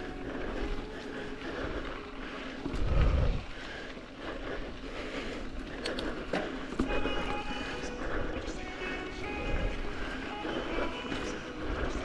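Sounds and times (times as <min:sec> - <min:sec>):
bike tyre and trail noise: 0:00.0 - 0:12.0
heavy low wind buffet: 0:00.0 - 0:12.0
wind rushing over microphone: 0:02.7 - 0:03.6.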